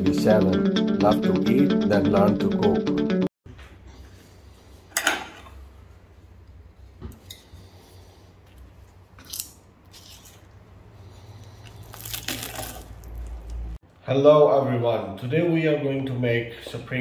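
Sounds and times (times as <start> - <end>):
spring rolls crunching: 11.4 - 13.8.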